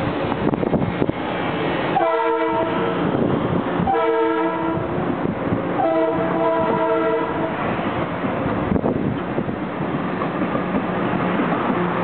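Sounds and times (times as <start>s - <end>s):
train running noise: 0.0s - 12.0s
train horn blasts: 2.0s - 3.0s, 3.8s - 4.9s, 5.8s - 7.6s.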